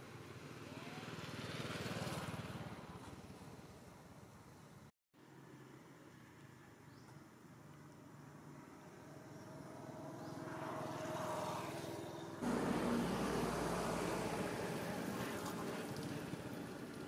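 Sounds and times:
rumbling outdoor background: 0:00.0 - 0:17.0
vehicle engine tone: 0:12.4 - 0:16.4.

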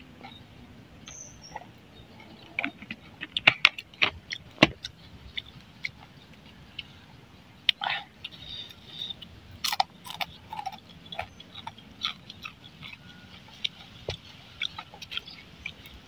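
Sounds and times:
crispy fritters crunching: 0:07.7 - 0:16.0.

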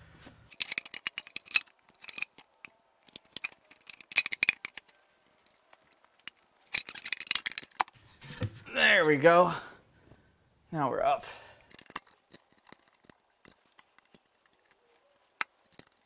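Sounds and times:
hand tools clinking on metal: 0:00.5 - 0:08.0, 0:11.6 - 0:16.0.

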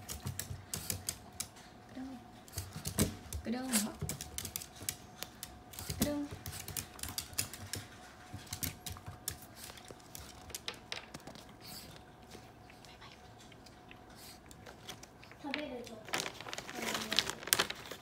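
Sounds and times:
dog claws tapping on wooden floor: 0:00.0 - 0:01.5, 0:02.5 - 0:11.4.

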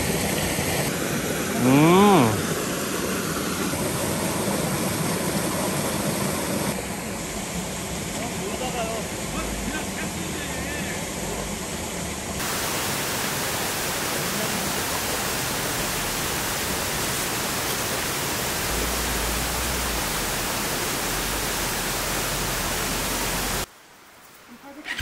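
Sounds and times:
steady rushing hiss: 0:00.0 - 0:25.0.

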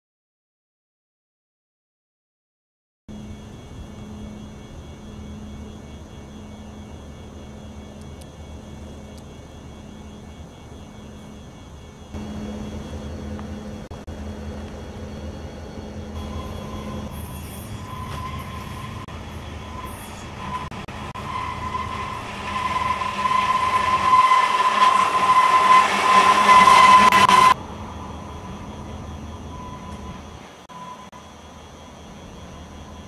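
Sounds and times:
diesel locomotives rumbling: 0:03.1 - 0:33.0
train wheels squealing on rail: 0:15.8 - 0:31.4.

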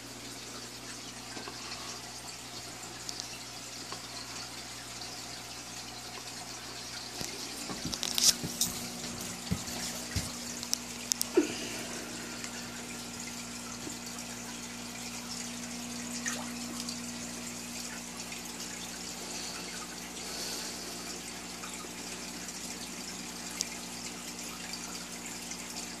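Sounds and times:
low electrical hum: 0:00.0 - 0:26.0
water trickling and splashing: 0:00.0 - 0:26.0.

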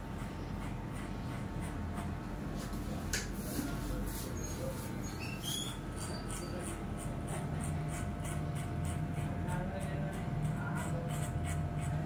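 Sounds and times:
clipper scratching through hair: 0:00.2 - 0:03.3, 0:05.4 - 0:12.0
electric hair clipper humming: 0:07.0 - 0:09.4.

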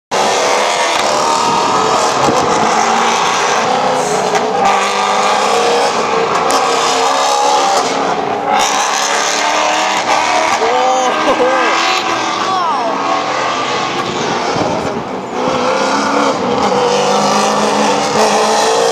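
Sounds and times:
race cars passing at speed: 0:00.1 - 0:18.9.

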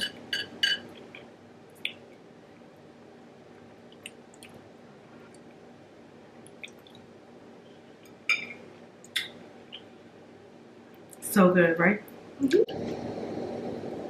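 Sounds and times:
wet eating sounds: 0:06.4 - 0:07.0.

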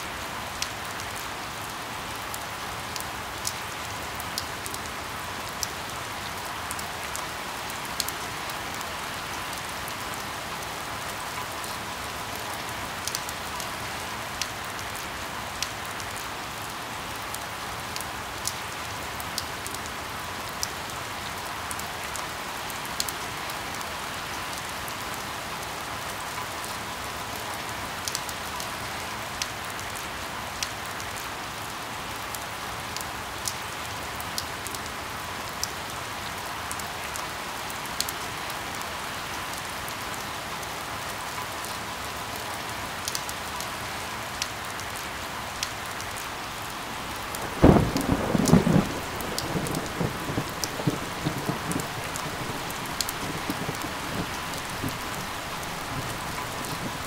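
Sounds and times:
steady rain: 0:00.0 - 0:57.0
thunderclap rumbling: 0:47.2 - 0:57.0.

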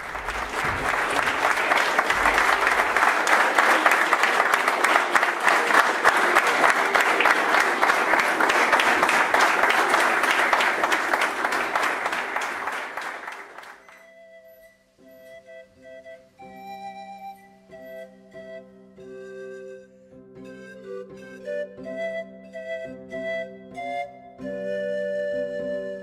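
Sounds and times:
audience applauding: 0:00.0 - 0:14.1.

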